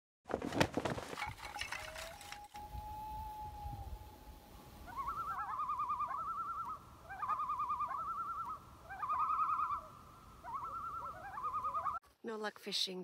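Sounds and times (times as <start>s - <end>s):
loon tremolo calls: 2.7s - 12.0s.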